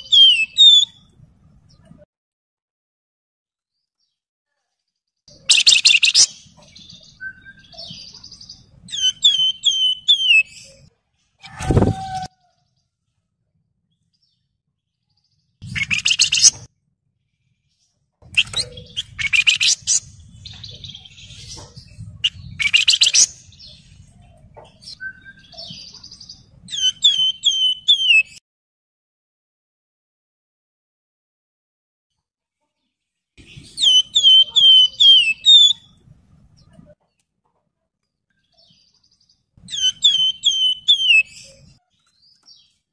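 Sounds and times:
bird singing whistled notes: 0:00.0 - 0:01.1, 0:05.3 - 0:10.9, 0:15.6 - 0:16.6, 0:18.3 - 0:21.4, 0:22.2 - 0:23.8, 0:24.8 - 0:28.4, 0:33.4 - 0:36.0, 0:39.7 - 0:42.8.

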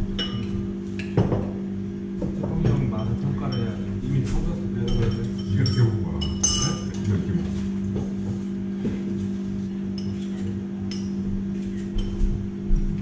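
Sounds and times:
low electrical hum: 0:00.0 - 0:13.0
cutlery and dishes clinking: 0:04.8 - 0:07.2.

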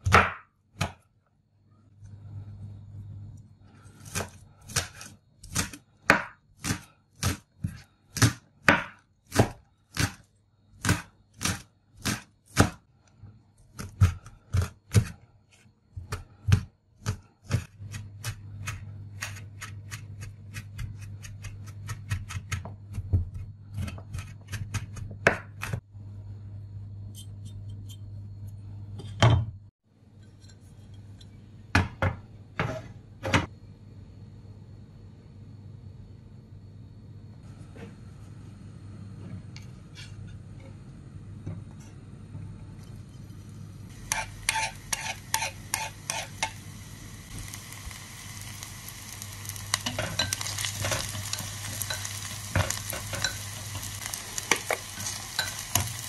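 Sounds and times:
knife chopping on wooden board: 0:00.0 - 0:01.0, 0:04.0 - 0:10.2
steady low hum: 0:01.1 - 0:08.0, 0:22.8 - 0:56.0.

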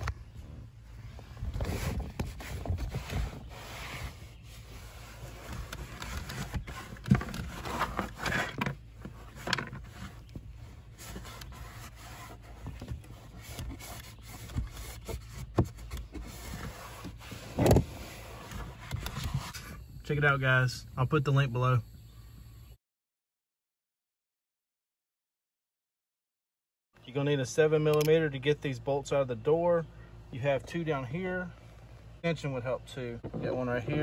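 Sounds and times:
towel wiping plastic dashboard: 0:00.0 - 0:19.8.

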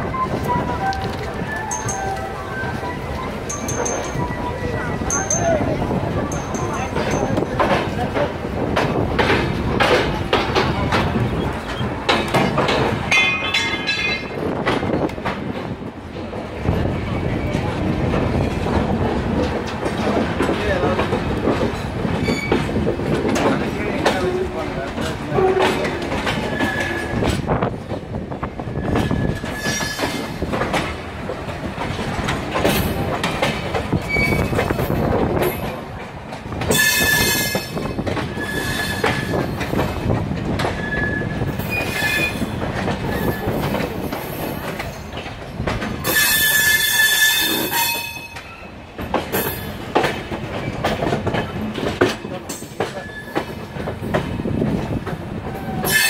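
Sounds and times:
train wheels rumbling and clattering: 0:00.0 - 0:56.0
high-pitched wheel squeals: 0:34.1 - 0:34.5, 0:38.3 - 0:39.3, 0:46.1 - 0:48.4.

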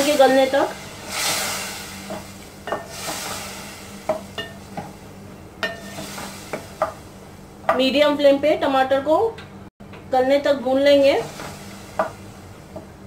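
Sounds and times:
hot oil sizzling: 0:00.0 - 0:07.8, 0:10.6 - 0:13.0.

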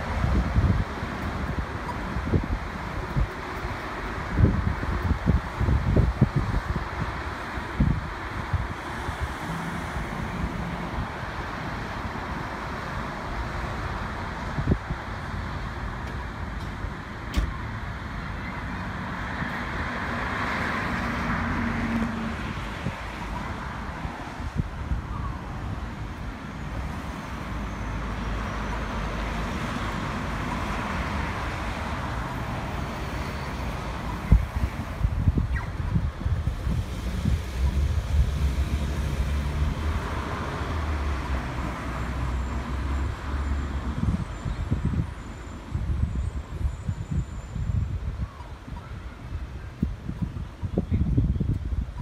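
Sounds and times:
cars passing: 0:00.0 - 0:51.9.

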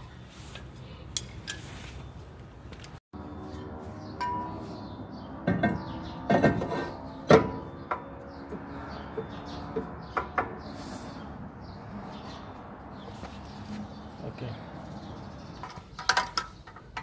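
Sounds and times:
metal clanks ringing: 0:04.2 - 0:04.6.

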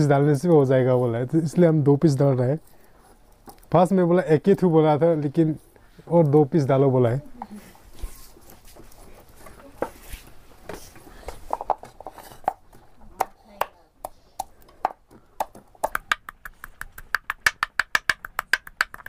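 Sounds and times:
wooden pestle pounding in mortar: 0:14.4 - 0:19.0.

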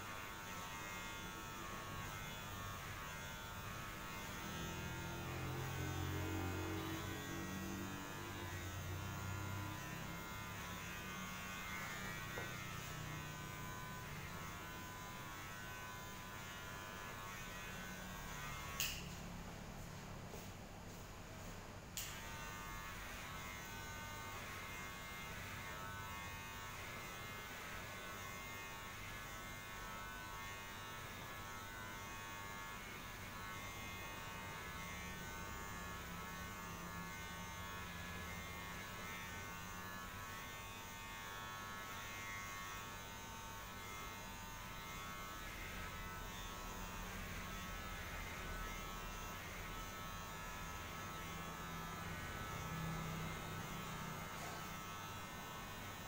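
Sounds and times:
small electric motor buzzing: 0:00.0 - 0:19.4, 0:22.0 - 0:56.0.

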